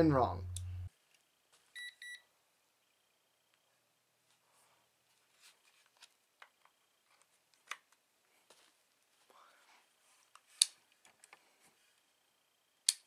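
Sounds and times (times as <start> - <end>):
test lead clicks: 0.0 - 0.9
multimeter beep: 1.8 - 2.2.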